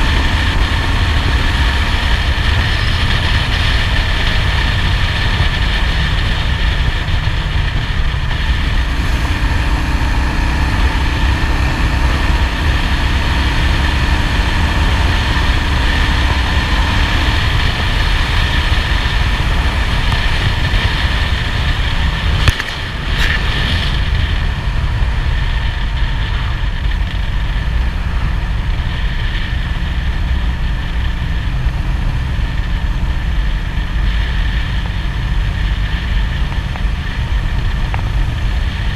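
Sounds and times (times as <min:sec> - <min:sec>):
motorcycle engine running: 0:00.0 - 0:38.9
wind and road noise: 0:00.0 - 0:38.9.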